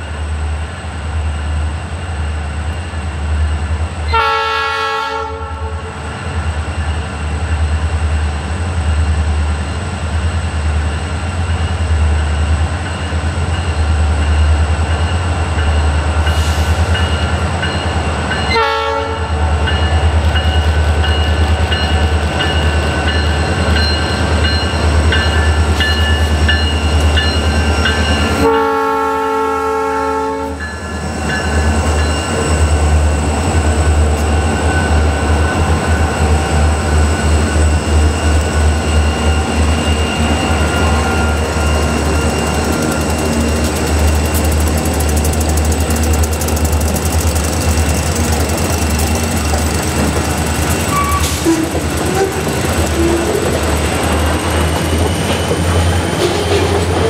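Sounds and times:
diesel locomotive engines rumbling: 0.0 - 57.0
train air horn blasts: 4.1 - 5.9, 18.5 - 19.4, 28.3 - 30.6, 50.9 - 53.5
train wheels clicking over rail: 40.6 - 57.0.

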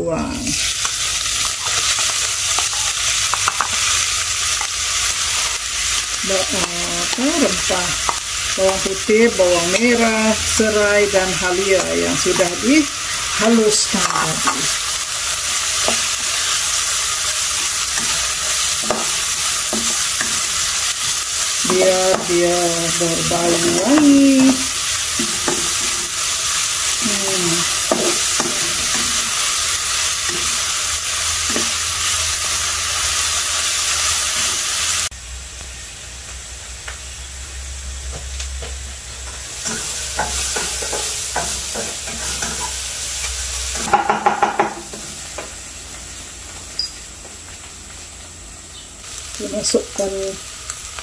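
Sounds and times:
paste sizzling in hot oil: 0.4 - 35.8, 38.8 - 46.9
spatula scraping wok: 0.5 - 34.7, 39.2 - 45.0.

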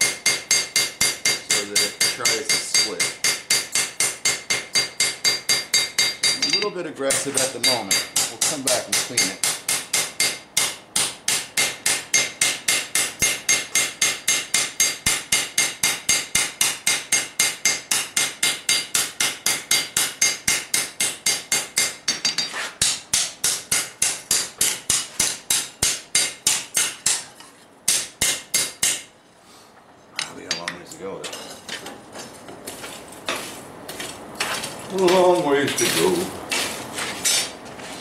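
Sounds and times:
hammer striking metal on anvil: 0.0 - 27.3, 27.9 - 29.1.

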